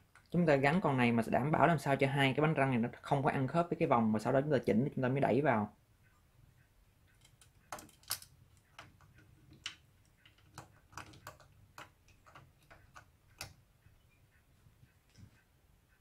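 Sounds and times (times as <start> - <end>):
light clicks of small parts: 7.1 - 13.6.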